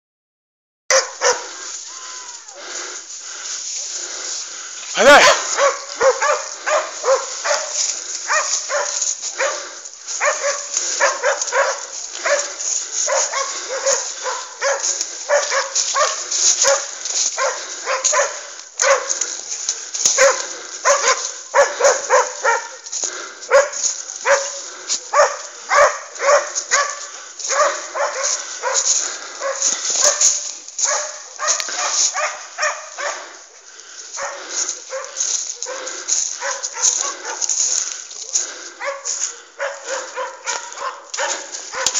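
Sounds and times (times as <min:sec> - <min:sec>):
hounds baying: 0:00.9 - 0:41.9.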